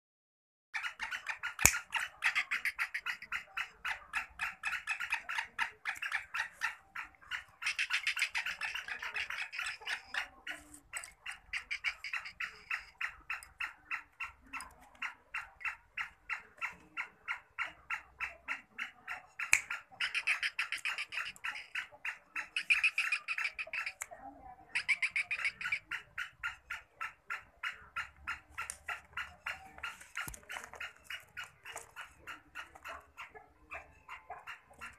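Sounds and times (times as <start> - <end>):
francolin rapid calls: 0.8 - 24.0, 24.7 - 33.3.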